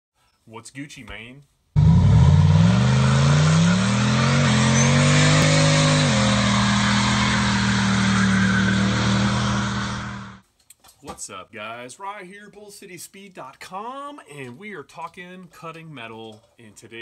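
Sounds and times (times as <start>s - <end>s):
car engine revving: 1.8s - 10.4s.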